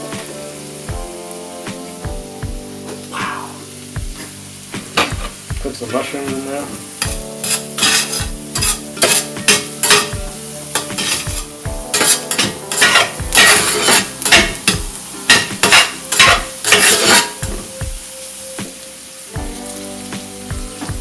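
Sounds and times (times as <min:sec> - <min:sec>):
food sizzling in a skillet: 0:00.0 - 0:21.0
metal blade scraping a skillet: 0:07.4 - 0:10.1, 0:10.8 - 0:11.3, 0:11.9 - 0:14.6, 0:15.3 - 0:17.4.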